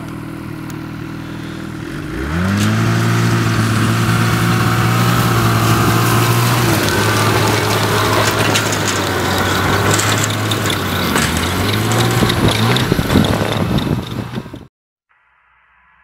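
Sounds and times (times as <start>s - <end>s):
snowmobile engine running: 0.0s - 14.7s
clicks and crunches: 6.4s - 13.8s.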